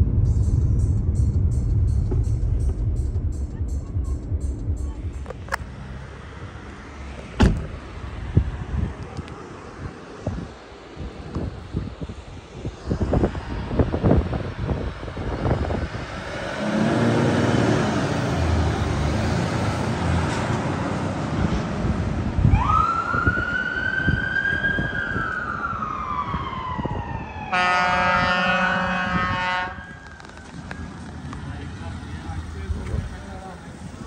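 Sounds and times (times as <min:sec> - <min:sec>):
diesel engine running: 0:00.0 - 0:22.5, 0:29.8 - 0:34.0
siren wailing: 0:22.4 - 0:31.2
horn blast: 0:27.5 - 0:30.0.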